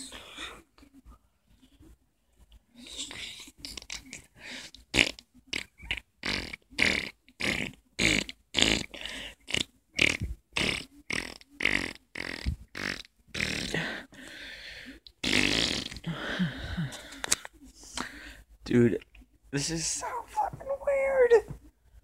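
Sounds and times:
person making mouth sound effects: 3.0 - 4.3, 4.9 - 14.0, 15.2 - 16.2.

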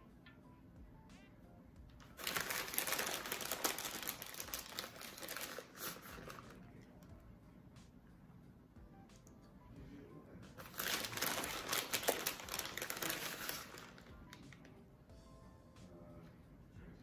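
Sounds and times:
plastic bag crinkling: 2.0 - 6.6, 10.6 - 14.7.

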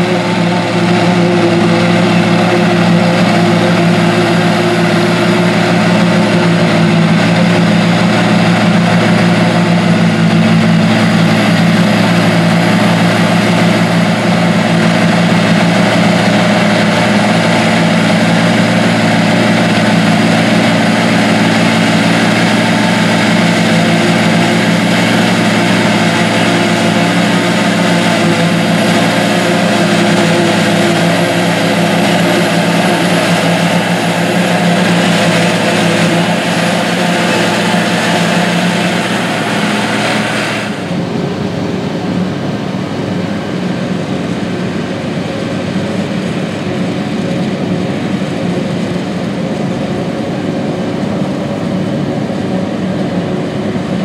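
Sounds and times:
tractor engine under load: 0.0 - 54.0
forage harvester chopping: 15.4 - 40.7.

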